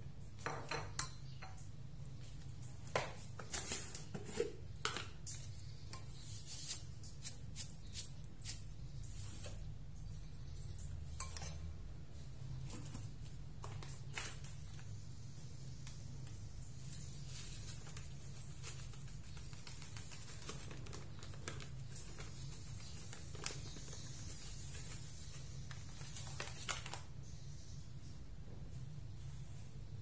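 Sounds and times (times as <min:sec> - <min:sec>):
kitchen items clicking and tapping: 0:00.4 - 0:01.8, 0:02.9 - 0:06.2.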